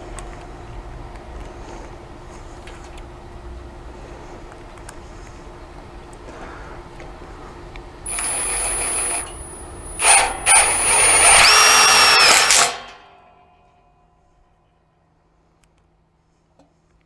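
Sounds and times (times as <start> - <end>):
cordless drill driving screws: 8.1 - 12.8.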